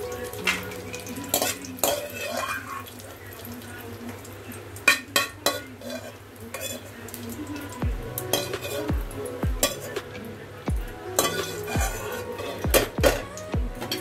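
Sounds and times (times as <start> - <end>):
steel spoon clinking in a pan: 0.0 - 2.9, 4.8 - 8.9, 11.2 - 12.9
oil sizzling: 0.0 - 14.0
music with a deep beat: 7.8 - 10.1, 10.7 - 14.0.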